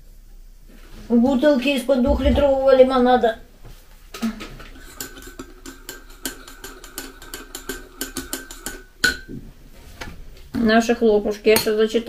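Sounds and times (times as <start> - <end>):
spoon clicking against cup: 5.0 - 9.2.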